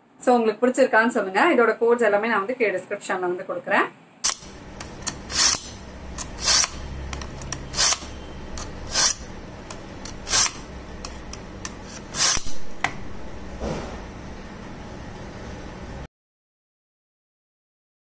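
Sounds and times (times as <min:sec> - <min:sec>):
knife scraping through sharpener: 0:05.1 - 0:09.3, 0:10.0 - 0:12.6.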